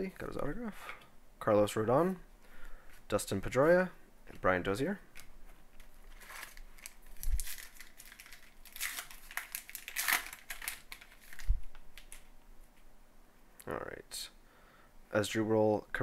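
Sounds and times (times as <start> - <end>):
wrapper tearing and crinkling: 5.8 - 12.3.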